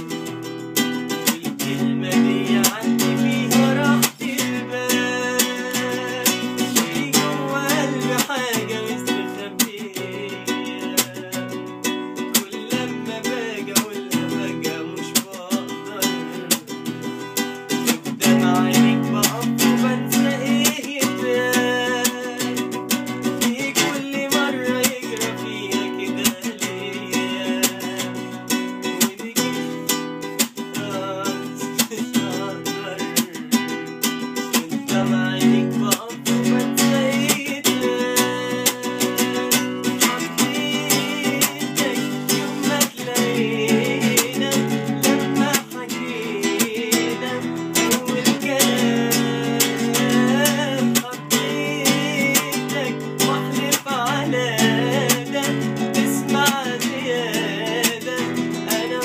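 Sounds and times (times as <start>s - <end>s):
man singing with vibrato: 0.0s - 59.0s
plucked acoustic guitar: 0.0s - 59.0s.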